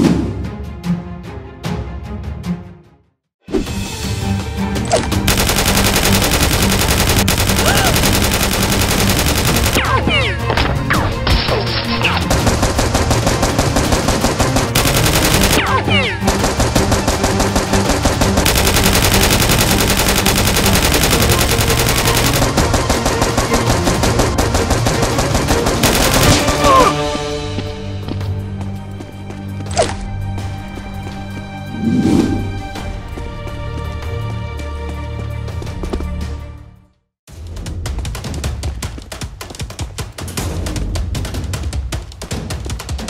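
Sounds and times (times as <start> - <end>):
automatic gunfire bursts: 5.3 - 9.9, 12.2 - 26.7.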